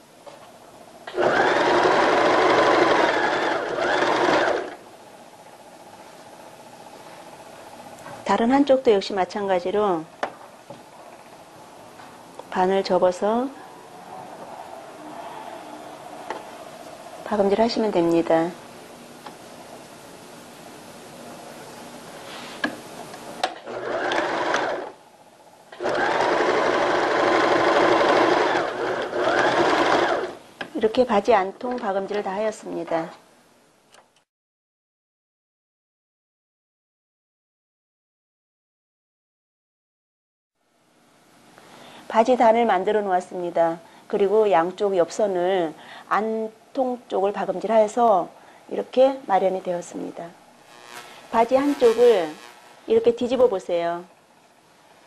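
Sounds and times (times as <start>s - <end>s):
sewing machine stitching: 1.1s - 4.8s, 23.5s - 25.0s, 25.8s - 30.4s.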